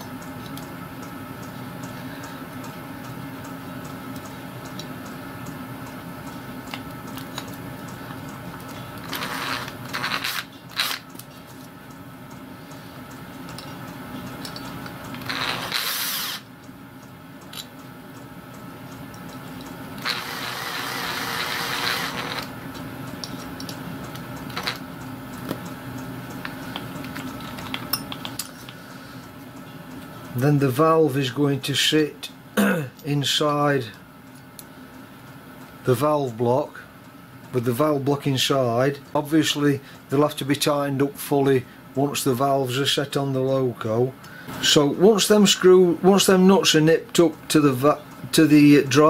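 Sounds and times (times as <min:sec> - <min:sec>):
cordless drill running: 0:15.6 - 0:16.4.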